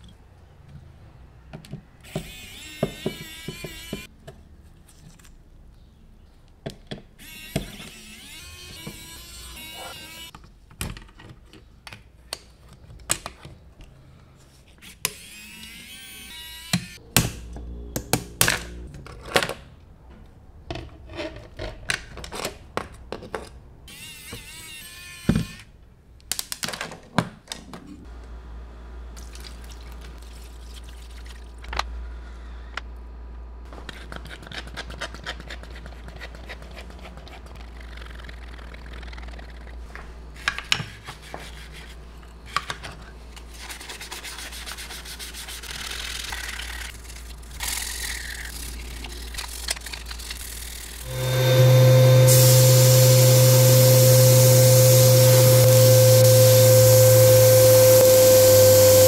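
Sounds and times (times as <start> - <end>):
low hum: 51.0 - 59.0.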